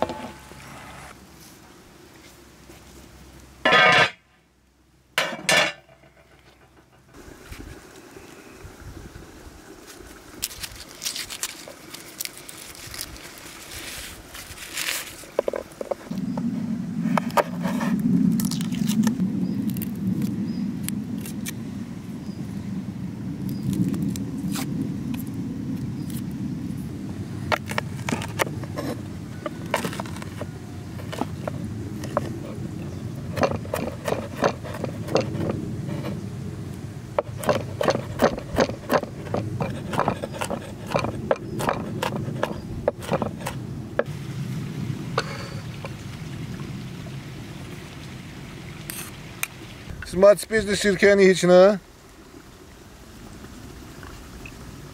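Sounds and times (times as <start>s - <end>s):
steady low rumble: 16.1s - 50.0s
knife cutting on wooden board: 33.3s - 36.2s, 37.2s - 43.6s.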